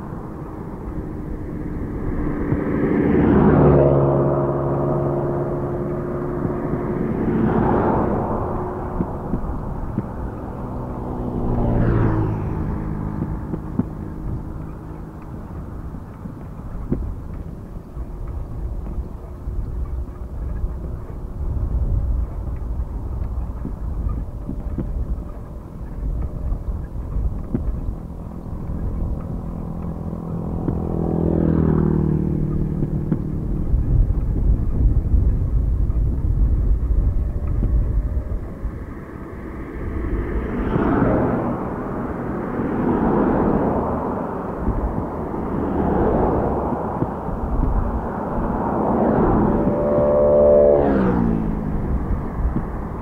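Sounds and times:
motor vehicle passing: 0:00.0 - 0:53.0
wind rumbling on microphone: 0:00.0 - 0:53.0
rushing noise: 0:28.6 - 0:53.0.

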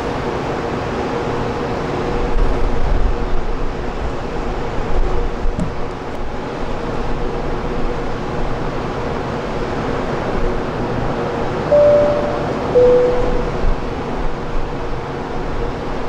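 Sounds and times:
bright steady tone: 0:11.7 - 0:13.8.

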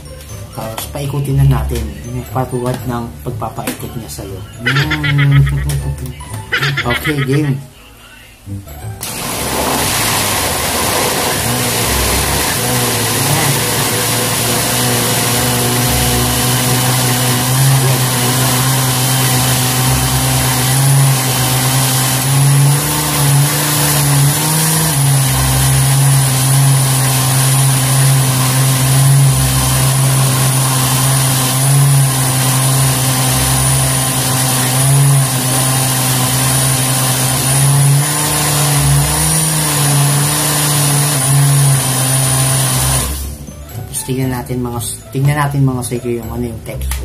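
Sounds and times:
blender motor humming: 0:04.6 - 0:06.0, 0:09.0 - 0:43.5.

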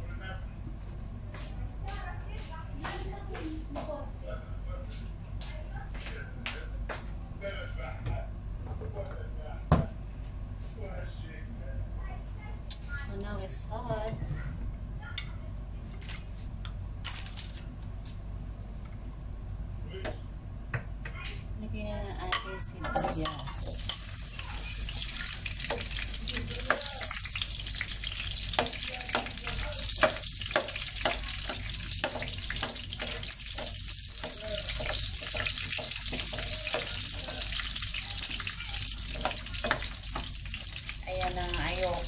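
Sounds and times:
spatula scraping a pan: 0:23.0 - 0:40.7
onions sizzling in hot oil: 0:23.0 - 0:42.0.

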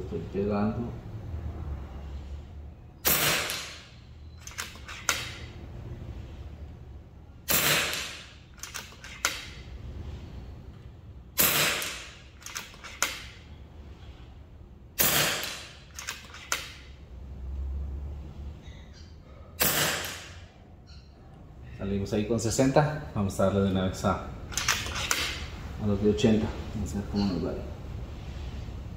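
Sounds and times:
air rifle shots cracking: 0:03.0 - 0:03.9, 0:07.5 - 0:09.5, 0:11.4 - 0:13.2, 0:15.0 - 0:16.5, 0:19.6 - 0:20.5
small sharp clicks of rifle lever: 0:04.4 - 0:05.4, 0:08.6 - 0:09.5, 0:11.8 - 0:13.2, 0:15.9 - 0:16.8.

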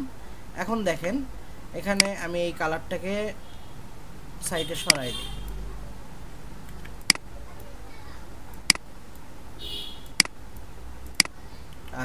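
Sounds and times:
low steady hum: 0:00.0 - 0:12.0
computer mouse clicks: 0:06.6 - 0:07.7, 0:08.5 - 0:09.3, 0:10.0 - 0:12.0.

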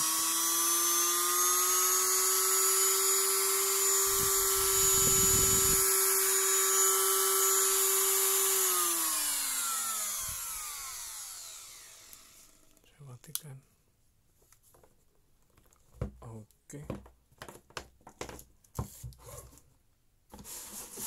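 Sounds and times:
rotary grinder whining: 0:00.0 - 0:12.8.

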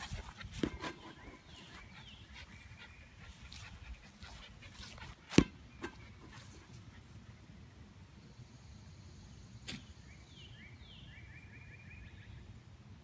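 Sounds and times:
faint dog playing: 0:00.0 - 0:07.6.

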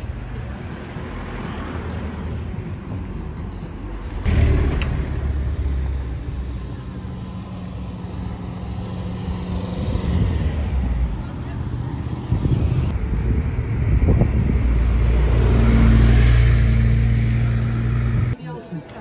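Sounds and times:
road rumble from bicycle: 0:00.0 - 0:18.4
car passing close by: 0:04.2 - 0:18.4.

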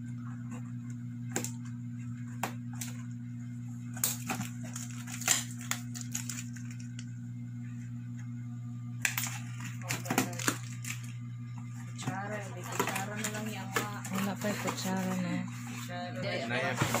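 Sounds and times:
steady low hum: 0:00.0 - 0:17.0
wrapping paper crinkling: 0:03.9 - 0:07.0.

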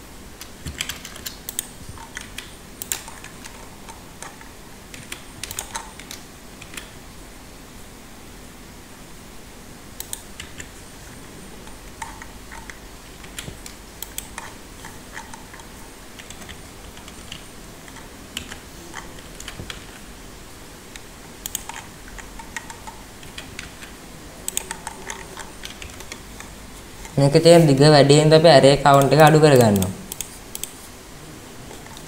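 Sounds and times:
faint low hum: 0:00.0 - 0:32.0
keyboard and mouse clicking: 0:00.4 - 0:07.0, 0:10.0 - 0:10.8, 0:11.6 - 0:20.0, 0:20.9 - 0:27.2, 0:28.8 - 0:30.8.

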